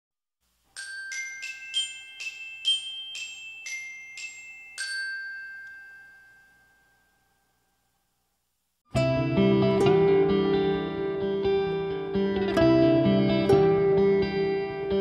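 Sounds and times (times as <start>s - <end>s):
bell-like chime jingle: 0.7s - 7.9s.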